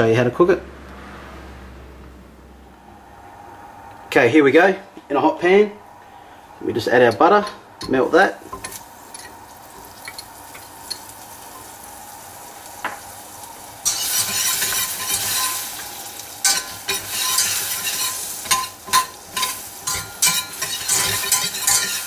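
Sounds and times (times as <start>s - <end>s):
butter sizzling in a saucepan: 7.9s - 22.0s
stirring scraping a pan: 13.8s - 22.0s.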